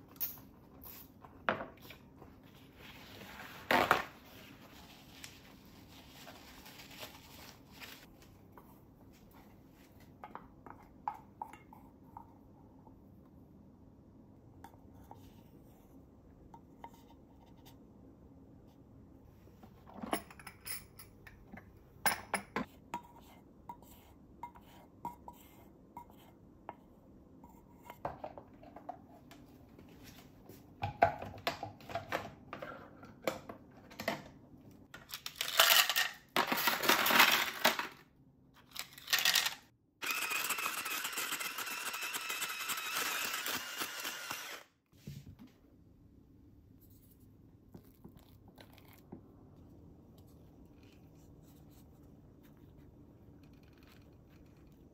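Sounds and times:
shaved-ice machine running: 40.0 - 44.7.

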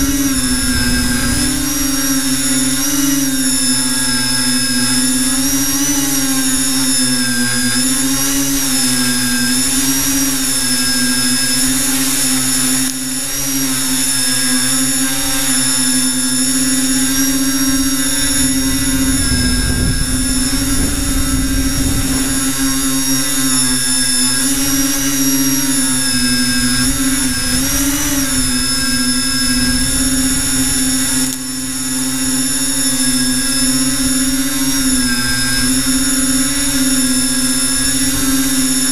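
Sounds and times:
wind rumble: 0.0 - 5.2, 17.5 - 31.2
drone motors whining: 0.0 - 38.9.

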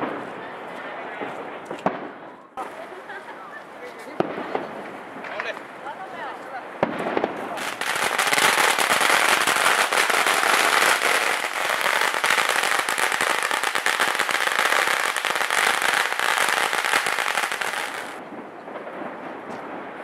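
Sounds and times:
firecrackers exploding: 1.2 - 20.0.

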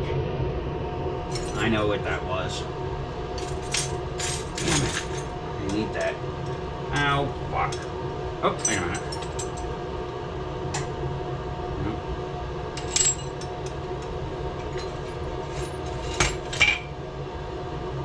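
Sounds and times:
torch flame roaring: 0.0 - 18.0
glass and tools clinking: 1.3 - 1.6, 3.4 - 6.2, 8.6 - 9.7, 12.8 - 16.9.

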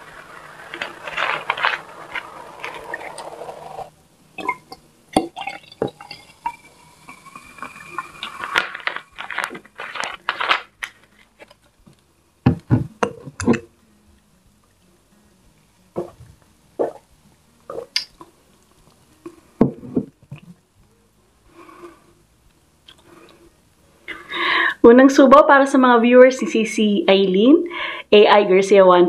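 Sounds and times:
soda pouring and fizzing: 0.0 - 10.7.

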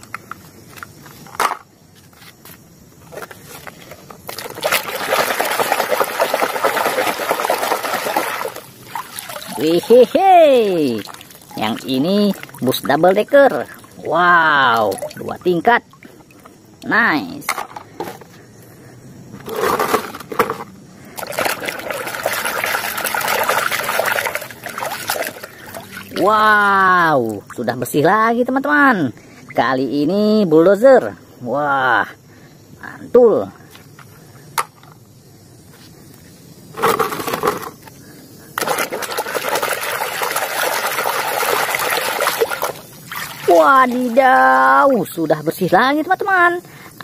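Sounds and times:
water sloshing in a basin: 3.1 - 18.3, 19.4 - 28.2, 36.8 - 46.5.

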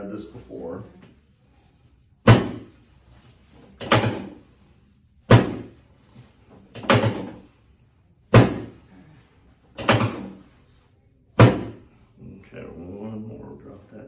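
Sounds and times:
drop table clunking: 2.3 - 2.7, 3.8 - 4.4, 5.3 - 5.8, 6.7 - 7.5, 8.3 - 8.8, 9.8 - 10.4, 11.4 - 11.8.

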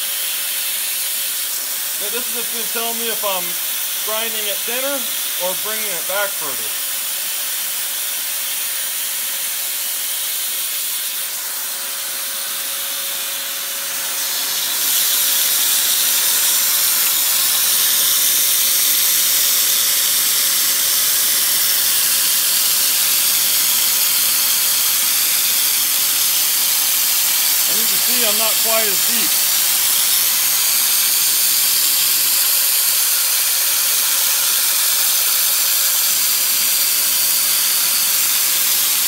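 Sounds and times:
belt grinder running: 0.0 - 39.0
coolant spray hissing: 0.1 - 11.4, 13.9 - 39.0
thin steady tone: 27.5 - 30.4.

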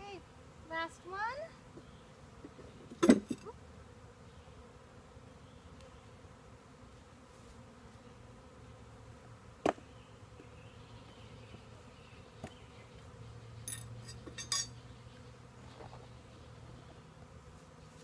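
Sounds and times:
bees buzzing: 0.0 - 18.0.

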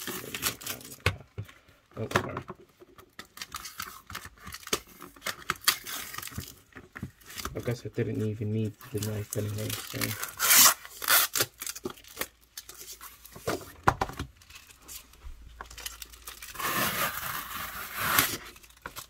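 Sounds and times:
tape crumpling: 3.2 - 13.3, 14.3 - 19.0
packing tape ripping: 8.9 - 12.9, 15.7 - 19.0.

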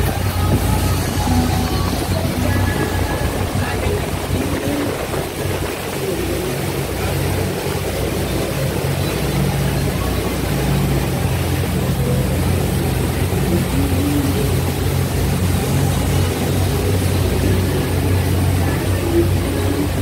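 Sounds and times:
churning wake and spray: 0.0 - 20.0
motorboat engine droning: 0.0 - 20.0.

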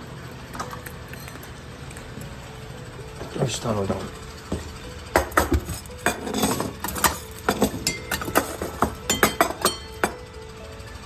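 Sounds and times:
metal bowls clinking: 0.6 - 2.3, 5.1 - 10.2.

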